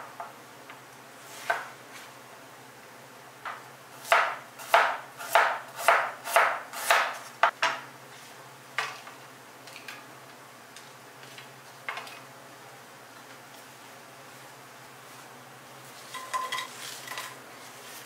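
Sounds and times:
knife chopping on wooden board: 4.0 - 7.6.

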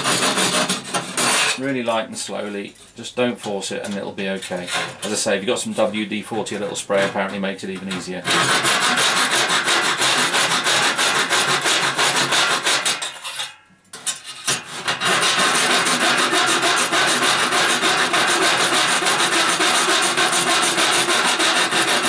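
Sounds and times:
hand saw cutting metal: 0.0 - 1.7, 4.4 - 5.2, 7.8 - 22.0.

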